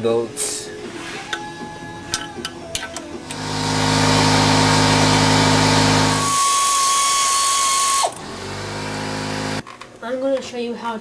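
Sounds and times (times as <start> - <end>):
power tool motor: 3.3 - 9.6.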